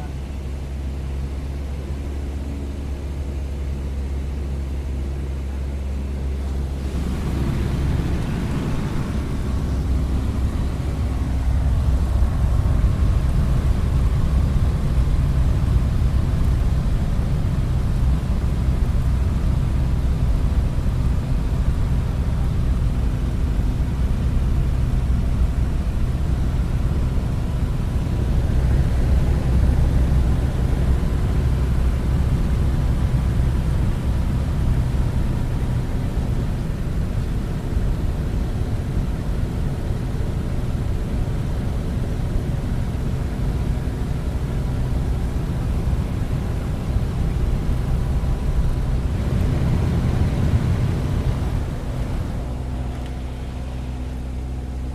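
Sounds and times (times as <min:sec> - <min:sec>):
propeller plane engine drone: 0:00.0 - 0:54.9
wind rushing: 0:06.8 - 0:12.6.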